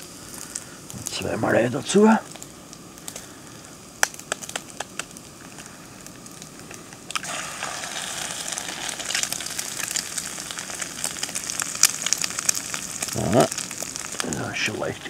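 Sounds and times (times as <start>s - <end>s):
egg and bacon sizzling: 0.0s - 15.0s
egg cracking: 4.0s - 5.7s, 6.3s - 14.5s.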